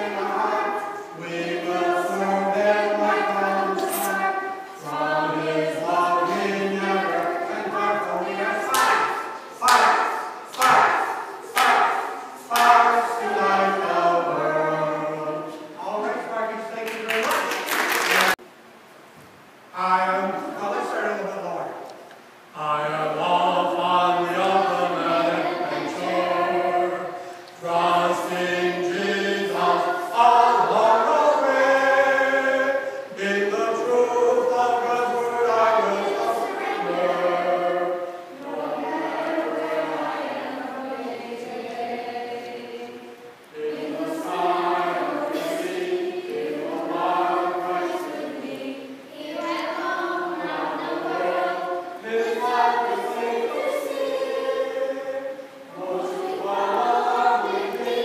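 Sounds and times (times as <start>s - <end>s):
children's choir singing: 0.0s - 18.4s, 22.5s - 58.0s.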